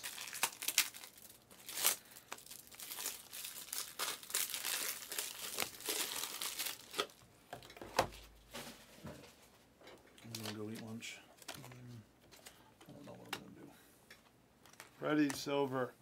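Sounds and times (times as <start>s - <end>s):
plastic wrapper crinkling and tearing: 0.0s - 7.2s, 10.2s - 12.6s.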